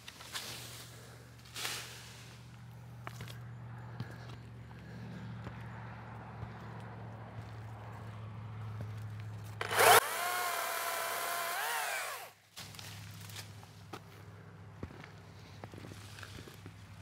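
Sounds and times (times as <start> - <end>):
chainsaw whining and cutting: 9.6 - 12.4.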